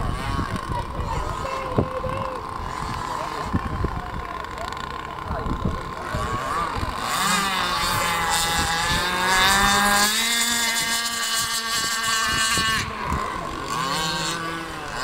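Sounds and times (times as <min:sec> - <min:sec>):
toy speedboat motor whine: 0:00.0 - 0:15.0.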